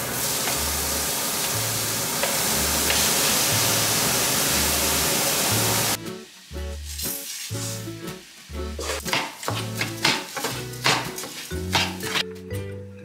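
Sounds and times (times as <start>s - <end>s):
onion sizzling in hot oil: 0.0s - 12.2s
background music with bass: 5.5s - 13.0s.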